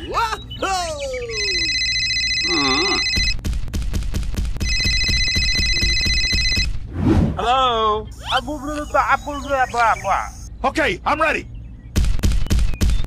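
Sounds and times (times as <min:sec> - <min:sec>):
telephone ringing: 0:01.3 - 0:03.4, 0:04.6 - 0:06.7.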